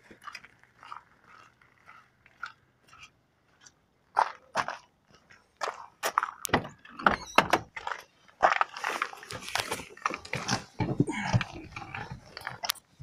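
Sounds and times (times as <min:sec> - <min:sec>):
car door opening: 0:06.5 - 0:07.8.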